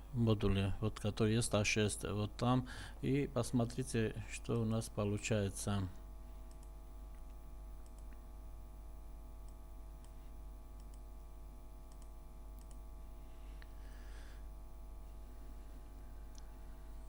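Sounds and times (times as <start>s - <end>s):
low electrical hum: 0.0s - 17.0s
computer mouse clicks: 6.4s - 8.2s, 10.8s - 11.0s, 11.9s - 12.8s.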